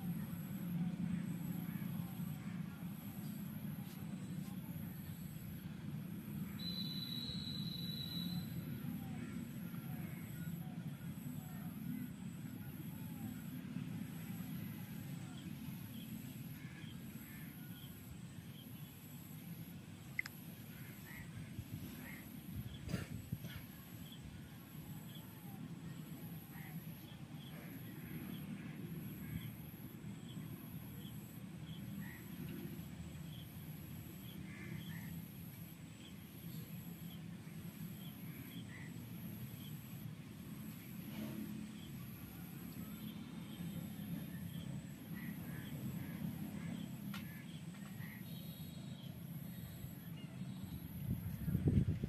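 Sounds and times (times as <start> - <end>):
faint high-pitched pulse: 6.3 - 14.5.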